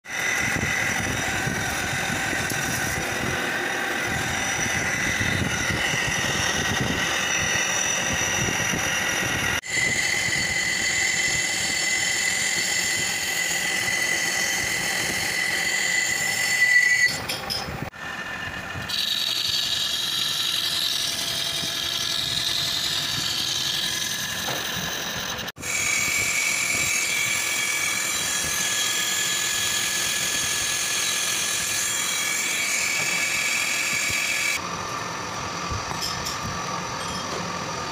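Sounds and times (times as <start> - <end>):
lathe cutting steel with high whine: 0.0 - 37.9.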